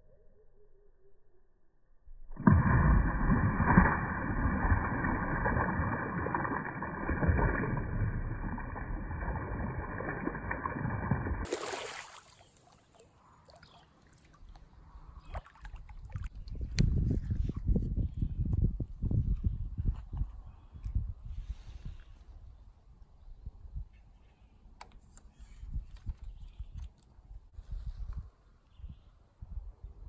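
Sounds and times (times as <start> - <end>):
creek water splashing: 2.4 - 16.3.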